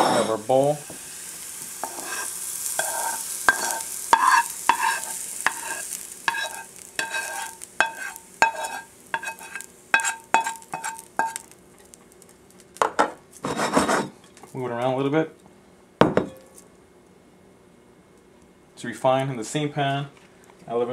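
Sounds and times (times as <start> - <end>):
light sizzle from hot pan: 0.0 - 17.2
metal spoon tapping pan and bowl: 2.8 - 5.7, 6.3 - 11.5.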